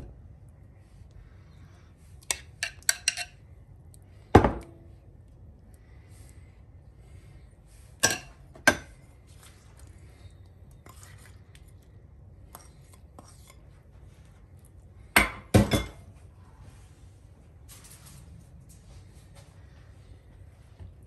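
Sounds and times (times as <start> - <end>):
spoon clinking ceramic dishes: 2.2 - 3.4, 8.0 - 9.0
spoon tapping and scraping: 2.2 - 3.4, 8.0 - 9.0, 12.5 - 13.7.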